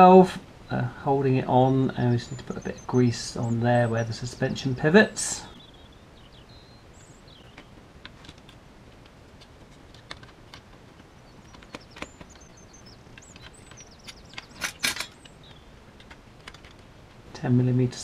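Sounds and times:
plastic parts clicking and knocking: 7.4 - 17.2
plastic parts clattering: 13.2 - 15.3, 16.0 - 16.9.

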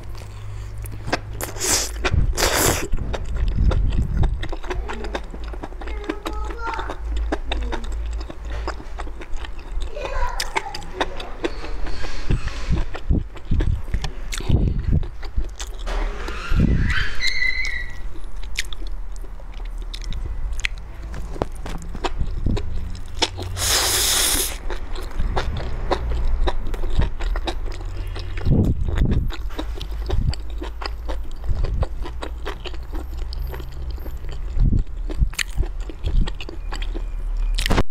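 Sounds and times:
steady low hum: 0.0 - 9.9, 18.0 - 37.5
wet chewing: 0.0 - 15.9, 16.9 - 37.9.

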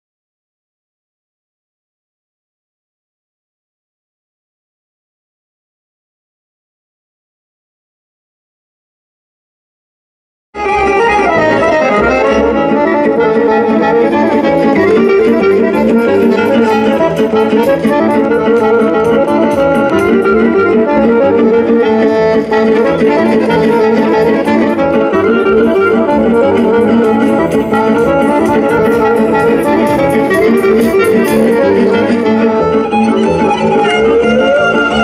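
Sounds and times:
loud instrumental music: 10.6 - 35.0.

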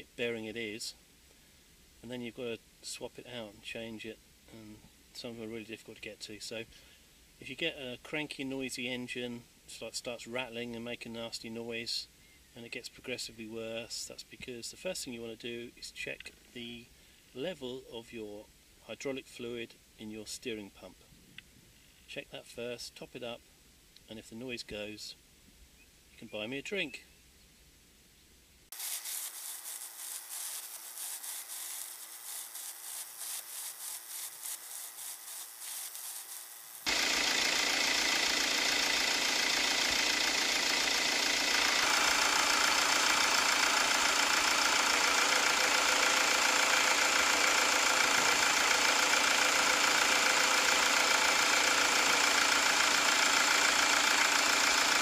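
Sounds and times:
van engine idling: 36.9 - 55.0.

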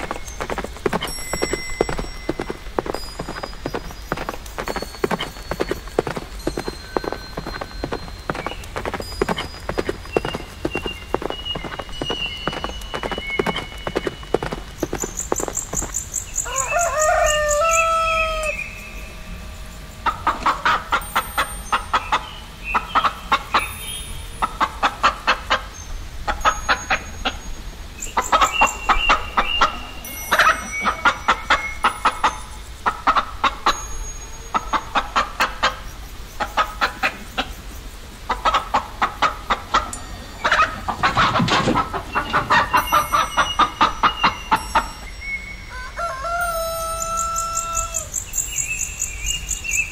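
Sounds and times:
chickens clucking: 0.0 - 18.6, 19.9 - 23.7, 24.4 - 27.4, 28.2 - 37.6, 38.2 - 44.9
rooster crowing: 16.4 - 18.7, 45.7 - 48.2.

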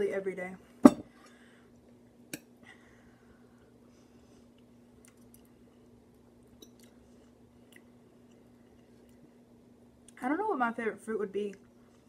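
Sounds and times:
quiet chewing: 4.3 - 9.4.

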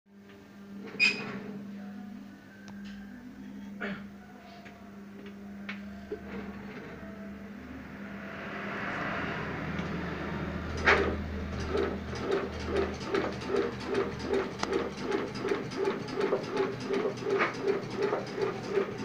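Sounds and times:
machine motor hum: 0.1 - 19.0
mechanical clacking: 10.6 - 19.0.

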